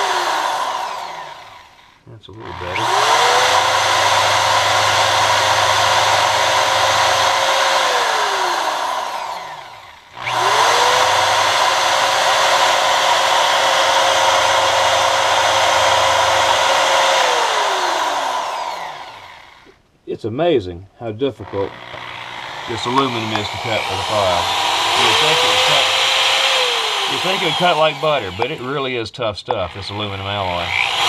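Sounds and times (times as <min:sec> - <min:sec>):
electric drill whining: 0:00.0 - 0:19.8, 0:21.4 - 0:31.0.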